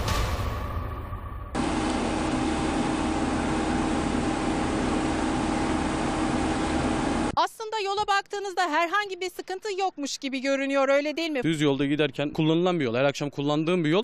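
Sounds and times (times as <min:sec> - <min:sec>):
machine hiss and hum: 0:01.6 - 0:07.3.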